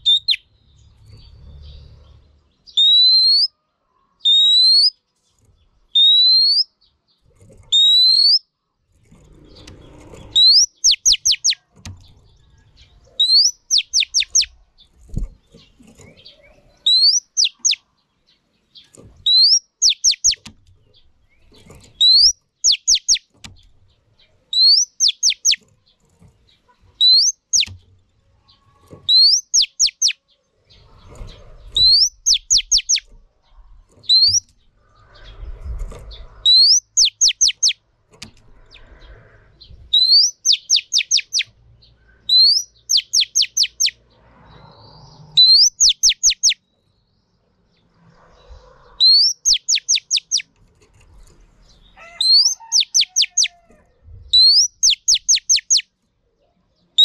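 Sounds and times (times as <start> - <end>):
bird song whistle and falling notes: 0.0 - 0.4, 2.7 - 3.5, 5.9 - 6.7, 7.7 - 8.5, 10.3 - 11.6, 13.2 - 14.5, 16.8 - 17.8, 19.2 - 20.4, 22.0 - 23.3, 24.6 - 25.6, 27.0 - 27.7, 29.1 - 30.2, 31.8 - 33.1, 34.0 - 34.5, 36.5 - 37.8, 39.9 - 41.5, 42.3 - 44.0, 45.4 - 46.6, 49.0 - 50.5, 52.0 - 53.6, 54.4 - 55.8.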